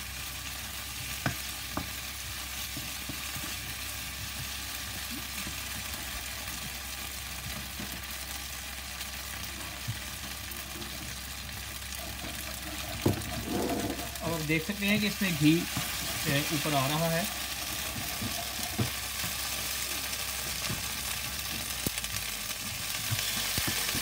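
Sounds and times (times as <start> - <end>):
food sizzling in a wok: 0.0 - 24.0
wooden spoon knocking on pan: 1.2 - 2.0, 12.0 - 14.2, 17.6 - 19.4.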